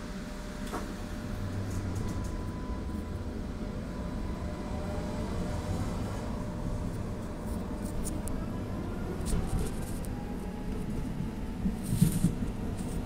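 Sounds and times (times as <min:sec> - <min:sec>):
tram rumbling: 0:00.0 - 0:13.0.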